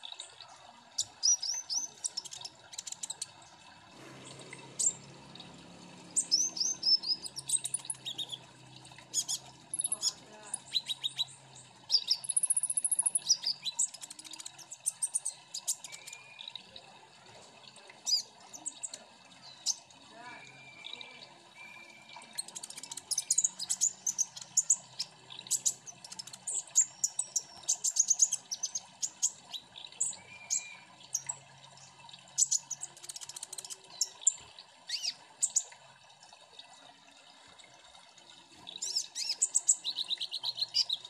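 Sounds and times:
birds chirping and twittering: 0:00.0 - 0:35.9, 0:38.4 - 0:41.0.

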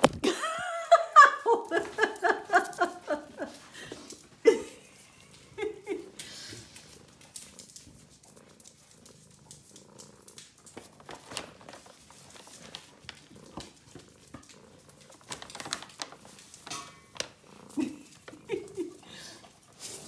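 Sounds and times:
cat purring: 0:01.6 - 0:20.0
claws crinkling paper bag: 0:10.1 - 0:13.6, 0:14.7 - 0:17.3.

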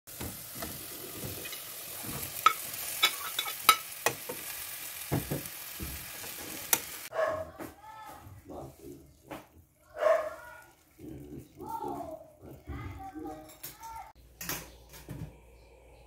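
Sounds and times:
food sizzling in a pot: 0:00.1 - 0:07.1, 0:08.7 - 0:14.2
metal spatula clinking on pot: 0:02.4 - 0:04.2.

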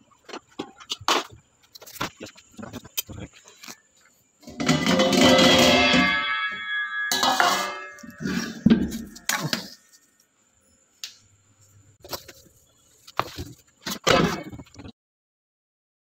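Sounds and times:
metal utensils clattering: 0:04.4 - 0:10.0.

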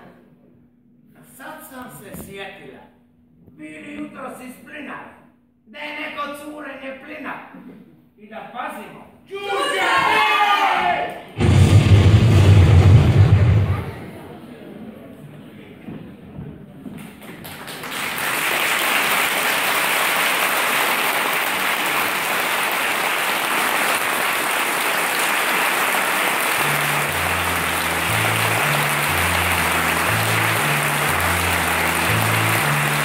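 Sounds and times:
audience applauding: 0:17.1 - 0:33.0
music with stepping bass line: 0:26.6 - 0:33.0.

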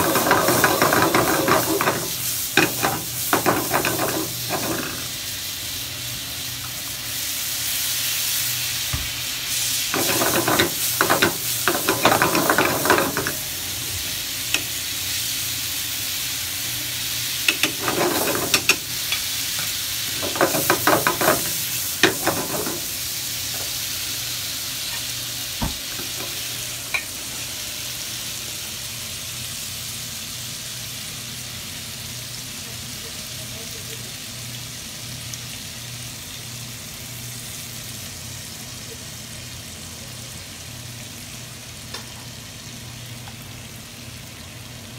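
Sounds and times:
utensil scraping a pan: 0:00.0 - 0:05.1, 0:10.0 - 0:13.4, 0:17.5 - 0:19.2, 0:20.1 - 0:22.9
shrimp sizzling in a frying pan: 0:00.0 - 0:44.9.

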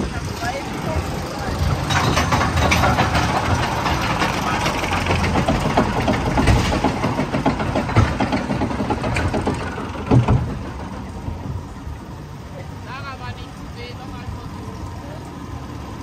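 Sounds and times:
roller coaster rumbling on track: 0:00.0 - 0:16.0
clicks and knocks: 0:01.6 - 0:11.0.

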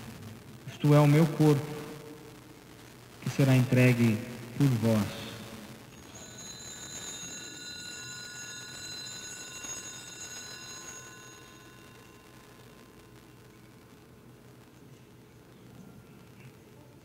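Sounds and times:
altar bells ringing: 0:05.9 - 0:13.5.

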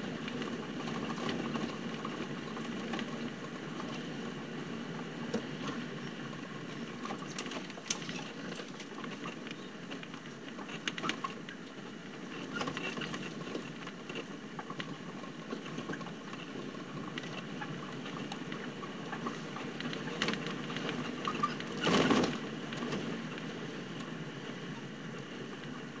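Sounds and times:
vehicle engine and tyre noise: 0:00.0 - 0:26.0
vehicle body squeaks and rattles: 0:21.1 - 0:22.4.

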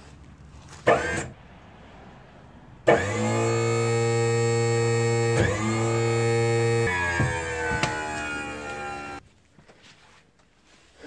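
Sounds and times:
hydraulic pump whining: 0:00.8 - 0:01.4, 0:02.8 - 0:09.2.

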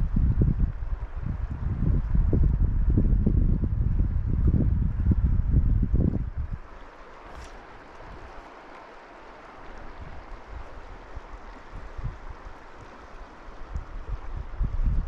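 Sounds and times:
river water flowing over stones: 0:06.6 - 0:15.0.

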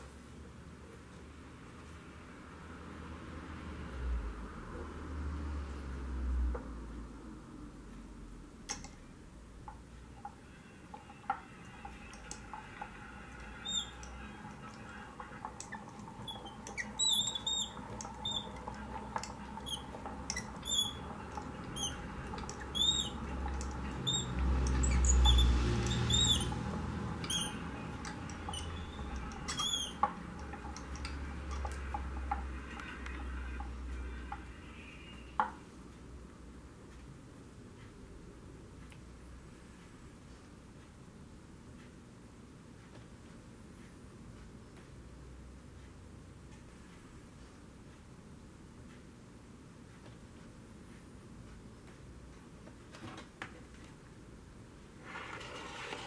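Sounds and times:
high mechanical squeaks: 0:10.1 - 0:35.4
hand-cranked generator rumble: 0:11.4 - 0:32.8.

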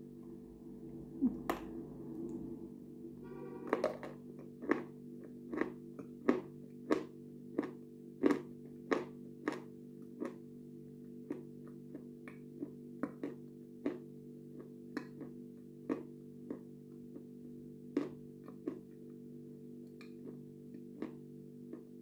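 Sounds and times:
quiet background music: 0:00.0 - 0:05.8.

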